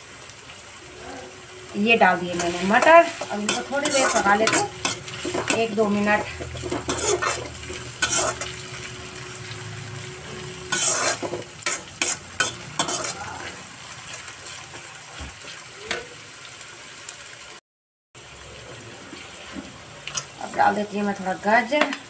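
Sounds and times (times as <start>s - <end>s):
onions sizzling in a pan: 0.0s - 17.6s, 18.2s - 22.0s
metal spoon scraping a pan: 2.0s - 16.0s.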